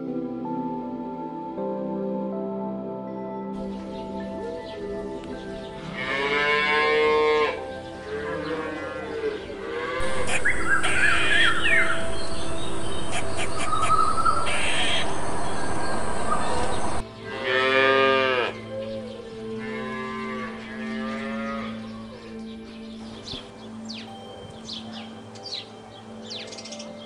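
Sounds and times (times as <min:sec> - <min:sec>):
cattle mooing: 0:05.9 - 0:12.1, 0:13.0 - 0:18.6
steady loud hiss: 0:10.0 - 0:17.0.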